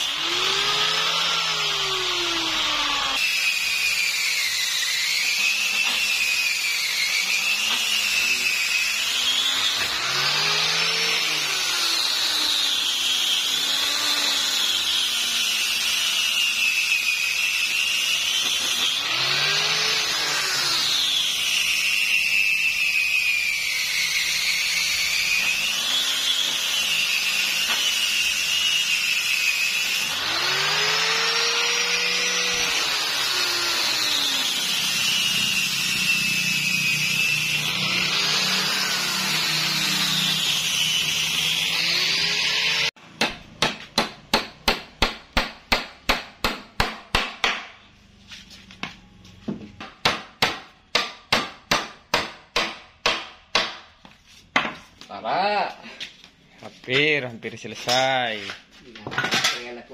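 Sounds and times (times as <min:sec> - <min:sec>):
power tool whining: 0:00.0 - 0:43.0
hammer striking: 0:43.0 - 0:47.8, 0:48.8 - 0:54.8.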